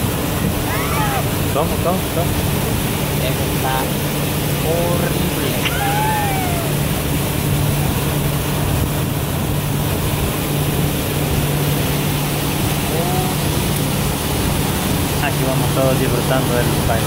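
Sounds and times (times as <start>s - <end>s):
boat motor humming: 0.0s - 17.0s
rush of wind and water: 0.0s - 17.0s.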